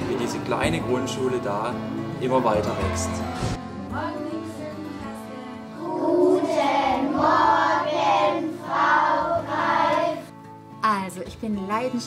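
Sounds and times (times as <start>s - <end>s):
children singing: 4.0s - 10.3s.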